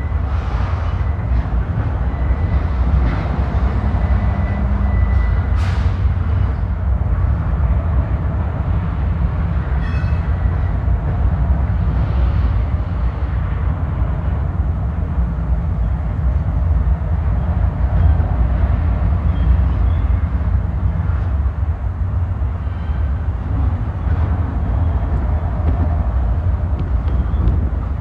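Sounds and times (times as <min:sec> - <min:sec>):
freight train rumbling past: 0:00.0 - 0:28.0.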